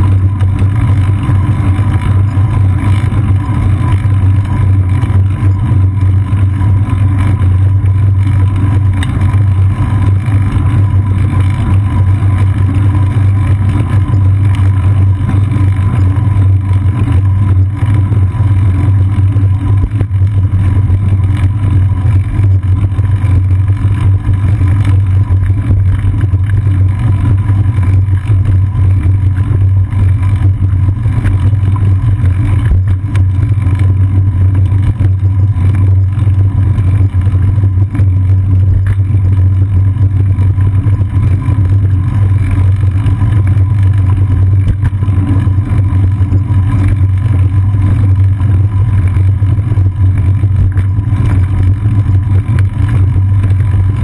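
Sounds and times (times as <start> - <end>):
riding vibration: 0.0 - 54.0.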